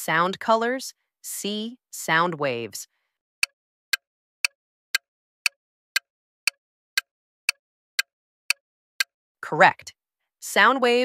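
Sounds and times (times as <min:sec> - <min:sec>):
countdown timer ticks: 0:03.4 - 0:09.1.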